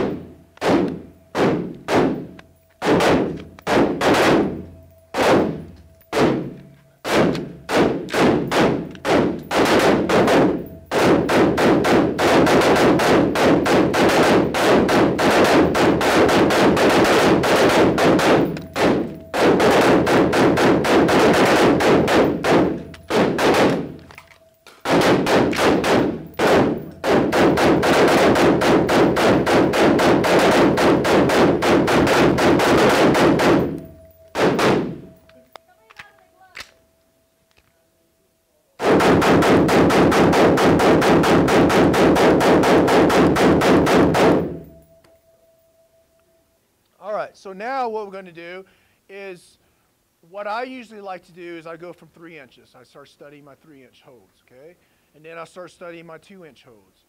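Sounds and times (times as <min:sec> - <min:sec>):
rifle shots echoing indoors: 0:00.0 - 0:35.4, 0:38.8 - 0:44.9.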